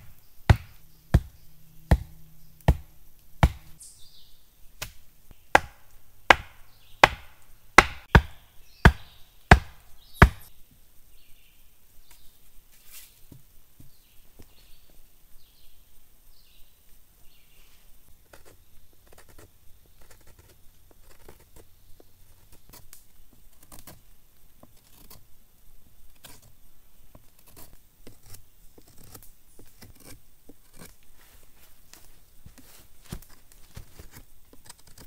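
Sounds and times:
knife carving wood: 0.0 - 3.8, 4.8 - 10.5, 18.2 - 21.7, 22.3 - 24.0, 24.6 - 25.3, 26.2 - 26.5, 27.1 - 31.2, 32.0 - 35.0
bird chirps: 3.8 - 4.5, 8.6 - 10.5.

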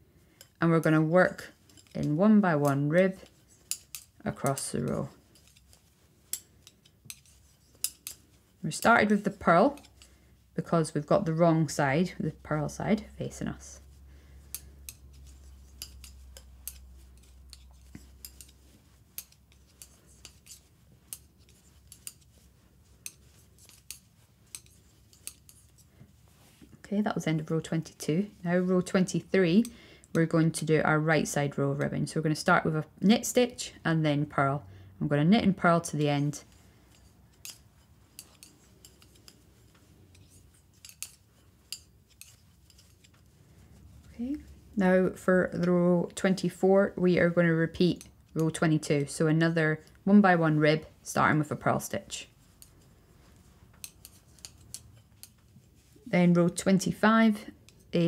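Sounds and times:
knitting needles clicking: 0.4 - 10.1, 10.7 - 30.7, 35.6 - 44.5, 47.3 - 49.1, 51.0 - 58.0.

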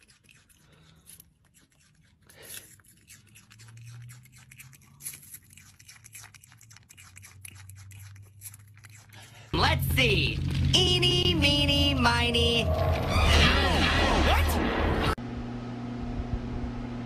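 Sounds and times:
wet mouth clicking and smacking: 0.0 - 9.5
animal chewing fruit: 0.0 - 11.6.

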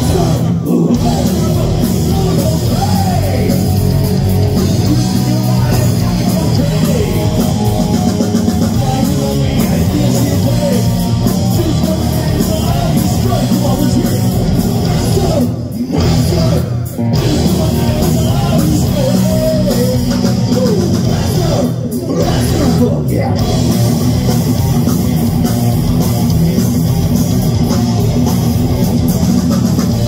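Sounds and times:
person singing through pa: 0.0 - 23.6
distorted electric guitars: 0.0 - 30.0
drum kit: 0.0 - 30.0.

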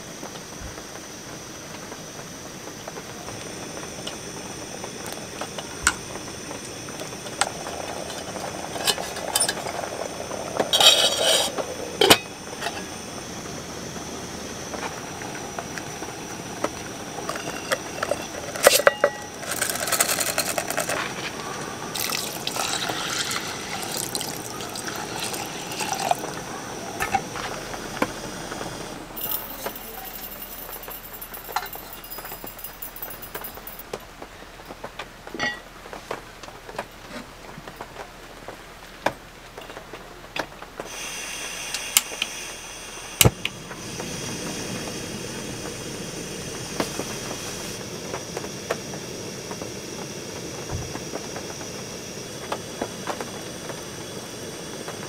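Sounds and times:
pots and utensils clinking: 7.0 - 12.9, 17.2 - 27.5, 29.2 - 34.0, 35.4 - 35.7
water pouring into pot: 17.0 - 27.3.

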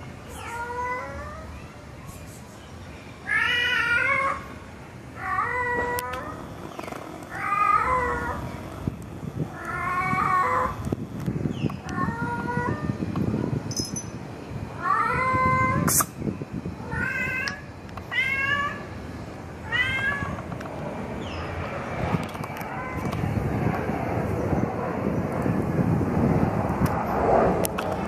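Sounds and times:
cat meowing loudly: 7.3 - 8.4, 16.8 - 18.9, 19.6 - 20.4.

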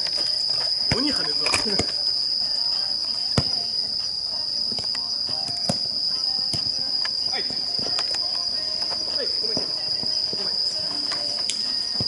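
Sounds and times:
insects chirring: 0.0 - 12.0
ball being kicked: 0.8 - 2.0.

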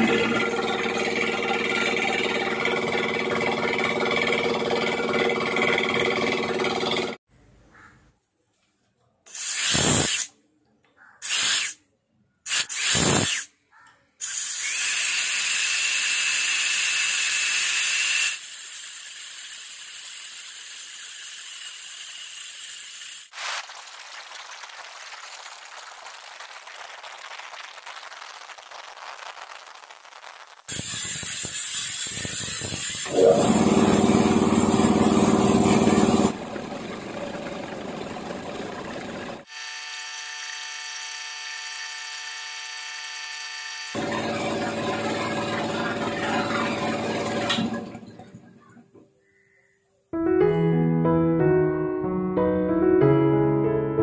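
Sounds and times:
compressor motor and pump running: 0.0 - 7.2, 30.8 - 48.4
compressed air hissing: 9.3 - 10.3.

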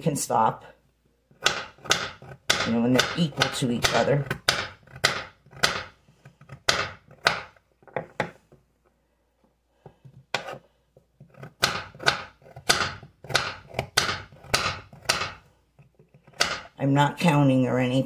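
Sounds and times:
knife chopping on cutting board: 1.4 - 5.9, 6.5 - 8.4, 11.3 - 15.4.

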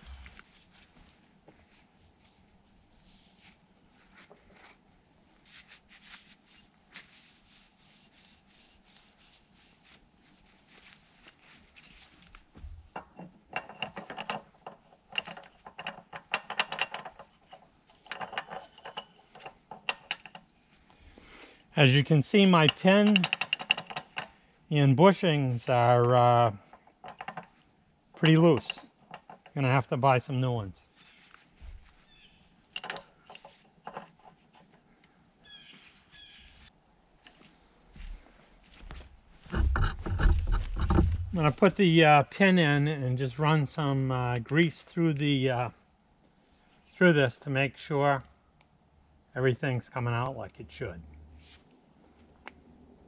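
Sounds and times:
metallic clicking of hand tool: 22.4 - 24.3
bird chirping: 32.0 - 32.6, 35.4 - 36.7.

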